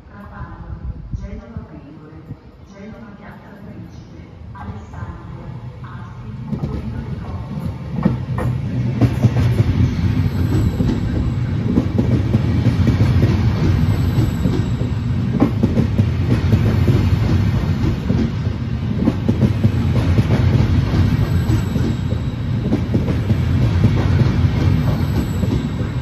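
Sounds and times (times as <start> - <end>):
train wheels rumbling on rail: 5.9 - 26.0.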